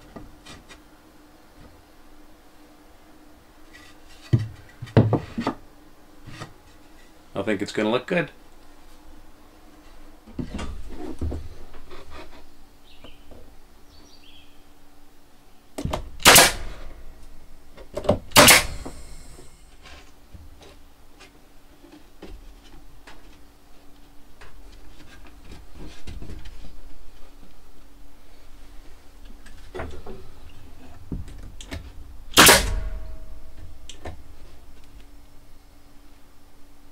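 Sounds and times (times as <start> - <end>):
loud sharp bangs: 16.2 - 16.8, 18.3 - 19.4, 32.3 - 33.2.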